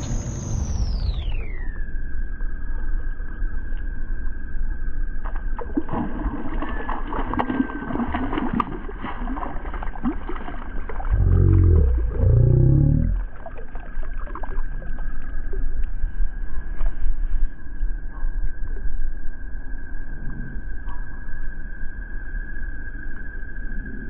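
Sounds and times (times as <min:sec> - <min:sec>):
fish splashing: 0:05.5 - 0:15.6
low wavering sound: 0:11.0 - 0:16.4.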